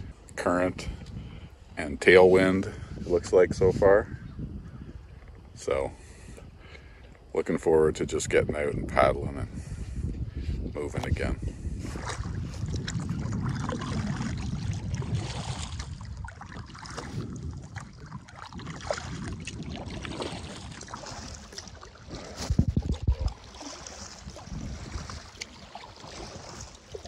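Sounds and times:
wind on microphone: 0.0 - 27.0
paddle strokes in water: 9.6 - 27.0.

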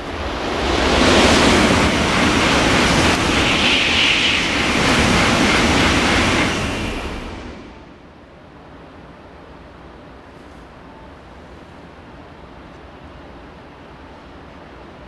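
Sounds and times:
high-speed train passing: 0.0 - 15.0.

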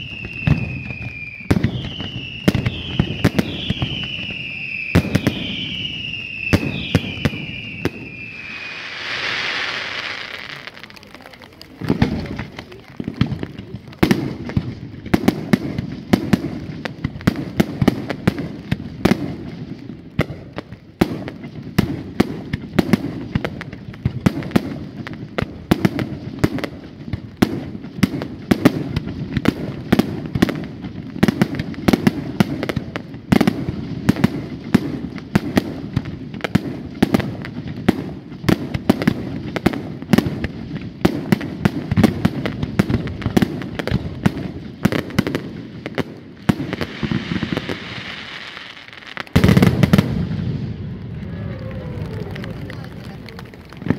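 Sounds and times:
fireworks bangs: 0.0 - 53.9
low rumble of explosions: 10.3 - 47.6, 49.2 - 53.9.

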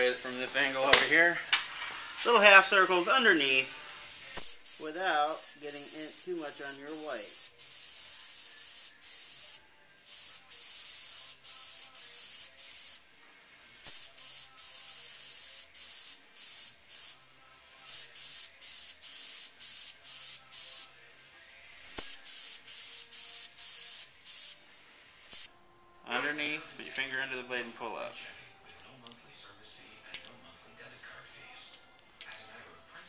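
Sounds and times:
airbrush spraying hiss: 3.5 - 13.0, 13.8 - 17.2, 17.8 - 20.9, 21.9 - 24.6, 25.3 - 25.5.

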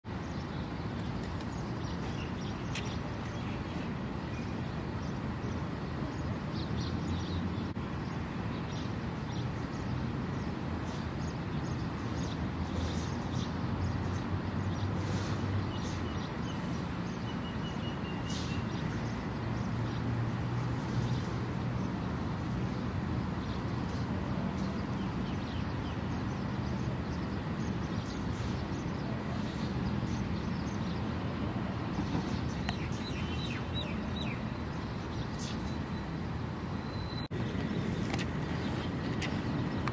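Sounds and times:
low rumble of distant traffic: 0.0 - 39.9
bird chirps: 32.0 - 39.9.

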